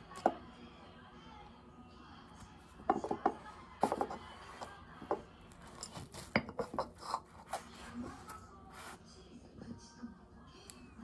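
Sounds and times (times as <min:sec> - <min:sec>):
knife scraping cake and plate: 0:05.6 - 0:09.0.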